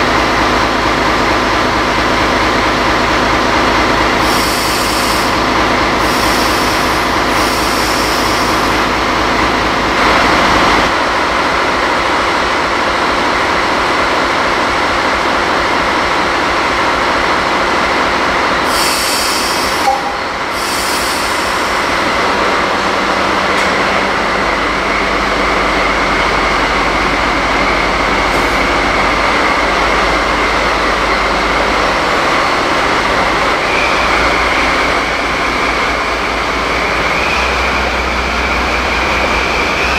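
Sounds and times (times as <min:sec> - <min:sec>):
locomotive engine running: 0:00.0 - 0:39.9
air hissing bursts: 0:04.2 - 0:05.4, 0:06.0 - 0:08.8, 0:18.7 - 0:22.0.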